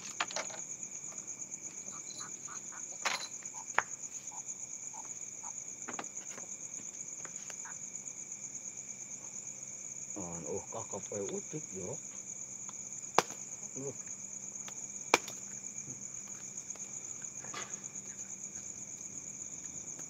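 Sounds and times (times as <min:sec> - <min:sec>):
insects chirring: 0:00.0 - 0:20.0.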